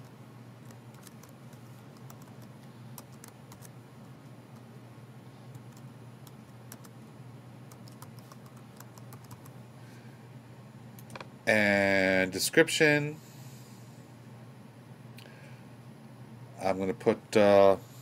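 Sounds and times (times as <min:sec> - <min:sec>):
keyboard typing: 0:00.6 - 0:03.7, 0:05.5 - 0:07.0, 0:07.7 - 0:09.6.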